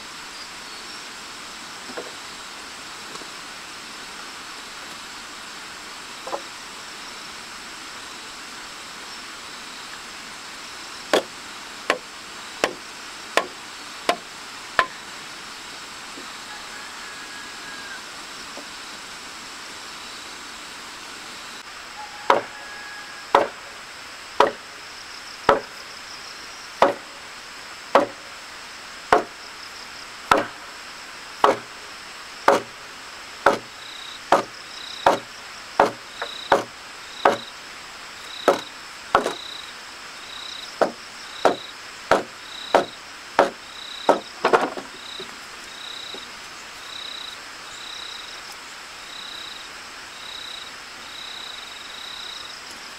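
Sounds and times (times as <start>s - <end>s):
insects buzzing and chirping: 0.0s - 52.9s
wooden mallet striking timber: 12.6s - 12.8s, 13.4s - 14.2s, 22.3s - 22.6s, 23.3s - 23.6s, 24.4s - 24.6s, 25.5s - 25.8s, 26.8s - 27.1s, 27.9s - 28.2s, 29.1s - 29.4s, 30.3s - 30.6s, 31.4s - 31.8s, 32.5s - 32.8s, 33.4s - 37.5s, 38.4s - 39.4s, 40.8s - 44.9s.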